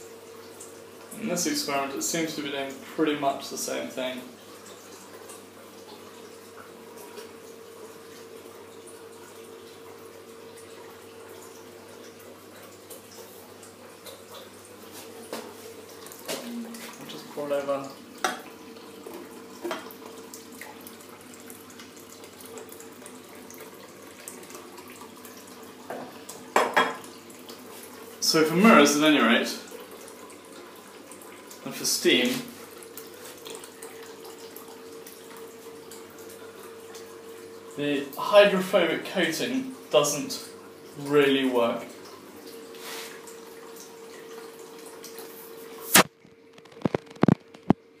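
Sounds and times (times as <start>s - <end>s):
tap water running: 0.0s - 48.0s
tap running into sink: 14.0s - 21.0s, 25.8s - 27.6s.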